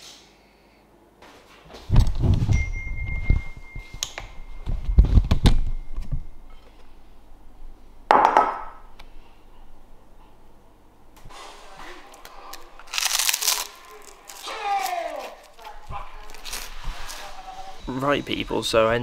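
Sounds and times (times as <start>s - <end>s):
thin steady high tone: 2.5s - 6.8s
dishes thudding and clinking: 8.1s - 8.8s.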